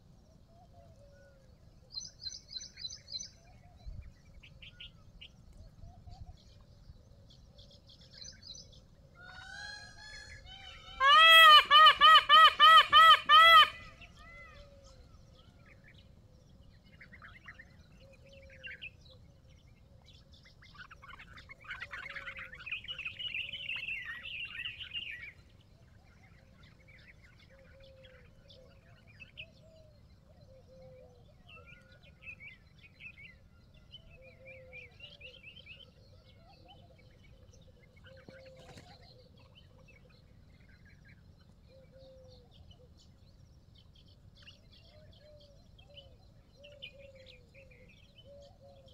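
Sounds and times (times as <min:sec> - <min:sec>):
birds chirping: 0:07.4 - 0:29.7.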